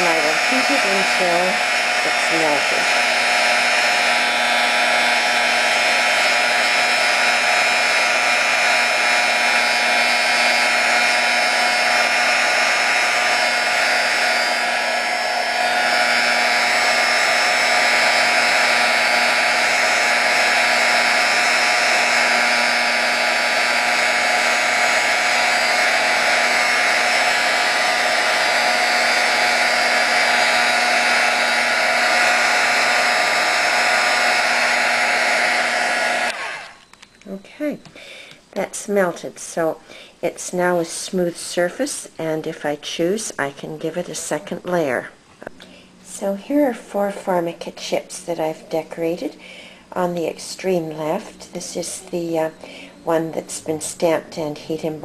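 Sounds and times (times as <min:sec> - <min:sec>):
heat gun blowing: 0:00.0 - 0:37.3, 0:49.0 - 0:55.0.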